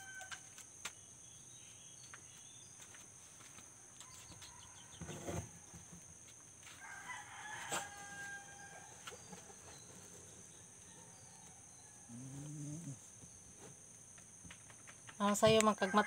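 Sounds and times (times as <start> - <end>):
rooster crowing: 0.0 - 0.5, 6.8 - 9.1, 15.7 - 16.0
insects chirring: 0.0 - 16.0.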